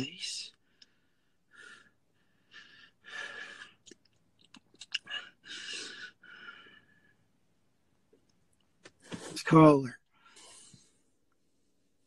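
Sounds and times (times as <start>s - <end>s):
person breathing heavily: 0.6s - 3.8s, 5.0s - 7.2s, 10.2s - 11.0s.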